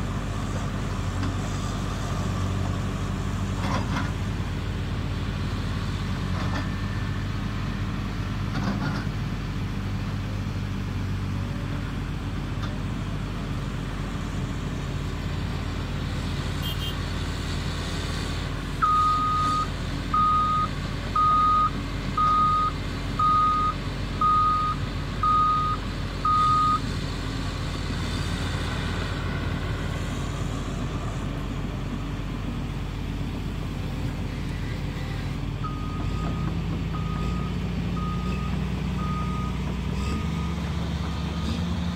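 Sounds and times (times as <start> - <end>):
excavator diesel engine running: 0.0 - 41.9.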